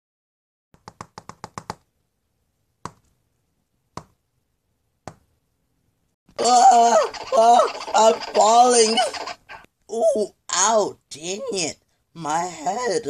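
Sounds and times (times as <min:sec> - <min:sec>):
fingertips tapping touchscreen: 0:00.8 - 0:01.9, 0:02.8 - 0:03.2, 0:03.9 - 0:04.2, 0:05.0 - 0:05.3.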